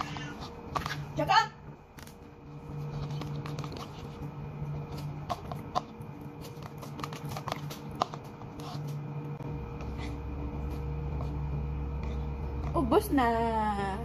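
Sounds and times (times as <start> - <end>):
low hum: 0.0 - 14.0
plastic spoon scraping bowl: 2.4 - 9.1.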